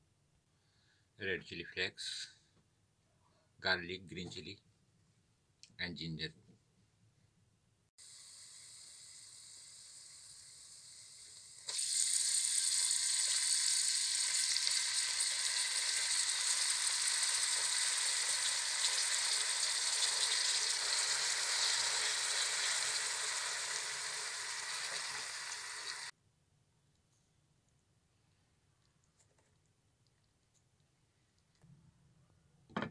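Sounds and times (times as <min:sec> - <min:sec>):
oil sizzling in a pan: 0:08.0 - 0:26.1.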